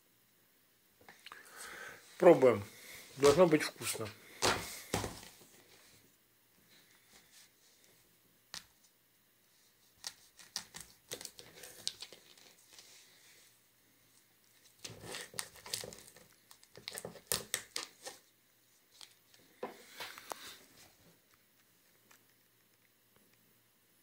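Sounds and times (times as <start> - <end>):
knife cutting plastic casing: 10.0 - 12.5, 14.8 - 18.2
plastic casing crinkling and tearing: 10.0 - 12.8, 14.6 - 18.2.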